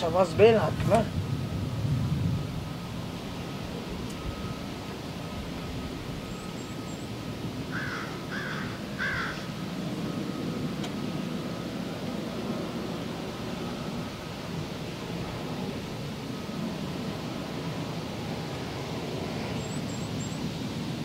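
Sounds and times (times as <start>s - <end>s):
low background rumble: 0.0s - 10.8s
crow cawing: 7.7s - 9.5s.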